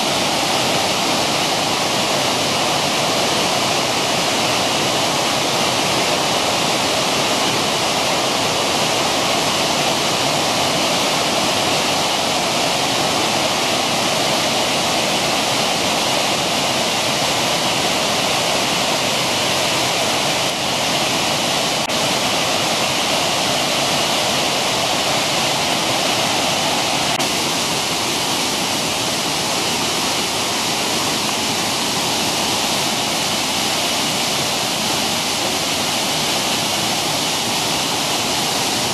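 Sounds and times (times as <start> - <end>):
stream rushing over rocks: 0.0 - 38.9.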